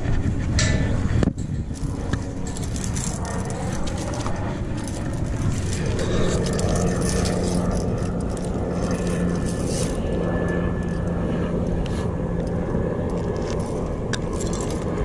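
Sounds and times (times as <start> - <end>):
low rumble: 0.0 - 15.0
steady engine drone: 0.0 - 15.0
metal clips clinking and rattling: 1.7 - 15.0.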